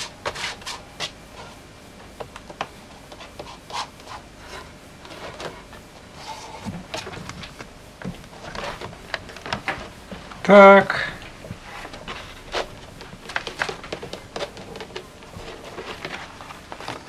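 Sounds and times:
wood rubbing and scraping: 0.0s - 17.0s
wooden objects knocking: 11.3s - 16.4s.

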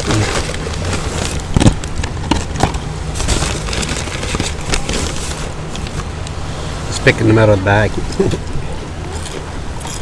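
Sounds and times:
paper carton handled: 0.0s - 6.1s
steady low rumble: 0.0s - 10.0s.

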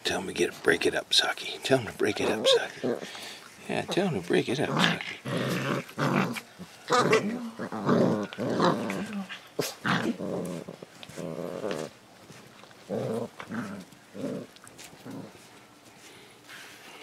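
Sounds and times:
puppies growling: 1.9s - 15.5s.

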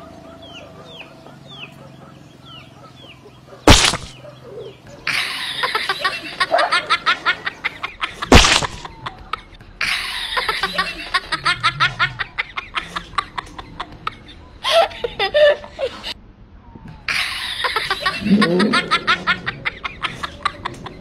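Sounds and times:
sharp burst of noise: 3.7s - 4.2s, 8.3s - 8.9s
rapid giggling laughter: 4.8s - 16.2s, 17.1s - 21.0s.

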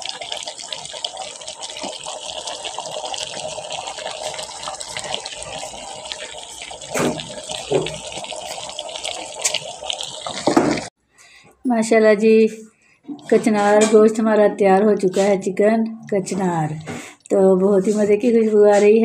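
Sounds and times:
curry sizzling and popping in pot: 0.0s - 11.0s.

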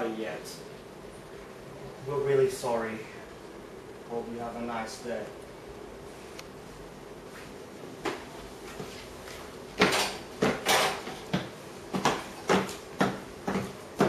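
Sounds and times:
footsteps on tiled floor: 7.3s - 13.8s.

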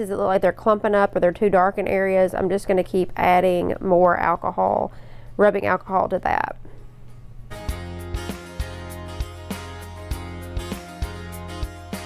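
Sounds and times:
background music with beat: 7.5s - 12.0s.

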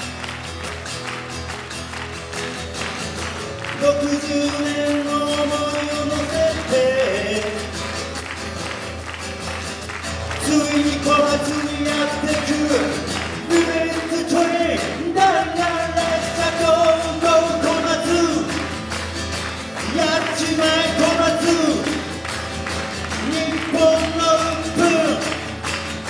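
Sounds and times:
acoustic guitar strumming: 0.0s - 26.0s
man singing: 3.6s - 7.9s, 10.3s - 18.8s, 19.7s - 26.0s.

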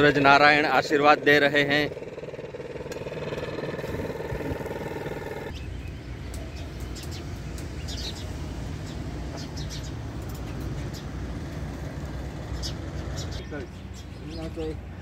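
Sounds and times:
low steady rumble: 0.0s - 5.5s
vehicle engine droning: 0.0s - 13.4s
birds chirping: 0.0s - 15.0s.

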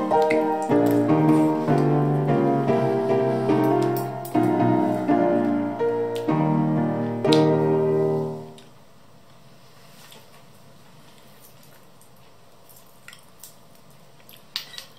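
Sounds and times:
background music chord: 0.0s - 8.6s.

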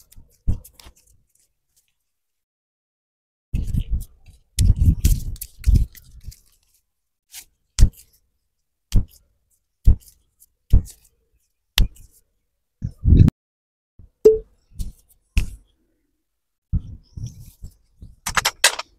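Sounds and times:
sharp joint clicks: 18.3s - 18.9s.

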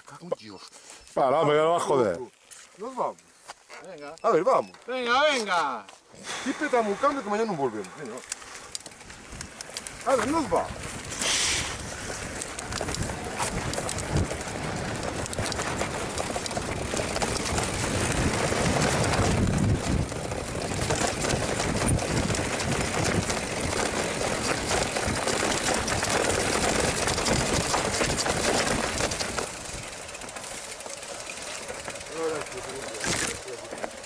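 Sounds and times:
bike tyres rumbling on trail: 7.0s - 34.0s
bike frame rattling: 7.3s - 34.0s
wind on microphone: 10.6s - 29.4s.

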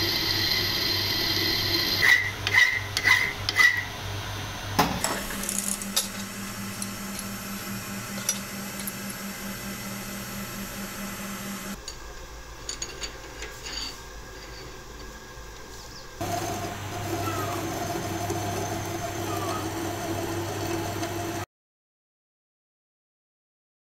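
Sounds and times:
metal lathe humming: 0.0s - 11.8s, 16.2s - 21.4s.

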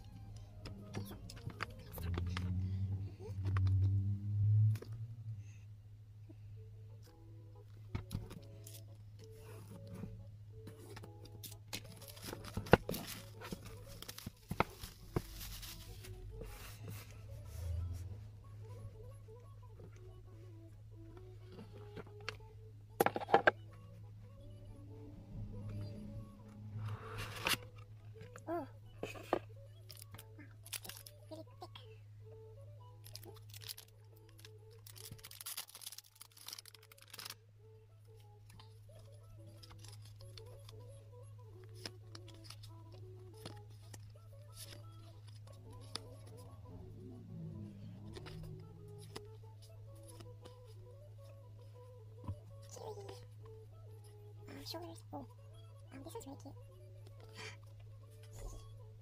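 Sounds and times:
plastic wrap crinkling and tearing: 11.7s - 16.1s, 29.8s - 31.1s, 33.0s - 37.4s
scissors cutting shrink wrap: 29.8s - 31.1s, 33.0s - 37.4s
plastic bag crinkling: 33.0s - 37.4s.

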